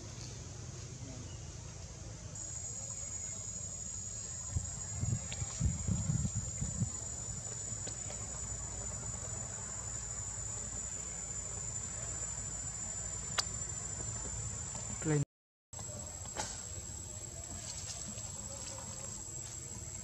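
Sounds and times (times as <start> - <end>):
insects droning: 0.0 - 15.2, 15.8 - 20.0
sharp click: 13.3 - 13.5.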